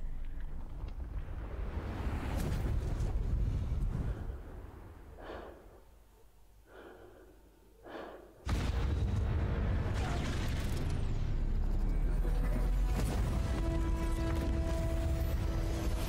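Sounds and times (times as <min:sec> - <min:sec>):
soft breaths: 0:03.8 - 0:08.4
explosion boom with deep rumble: 0:08.5 - 0:11.3.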